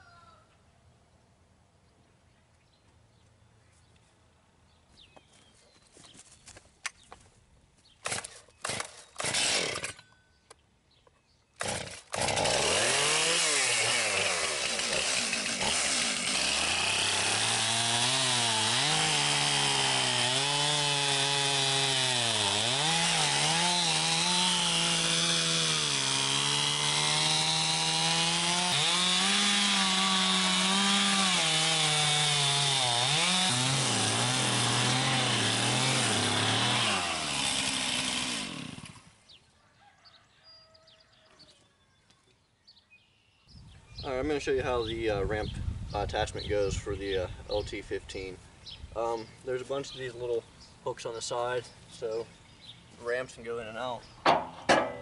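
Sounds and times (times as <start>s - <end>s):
chainsaw cutting log: 8.0s - 10.0s, 11.6s - 39.2s, 54.2s - 55.0s.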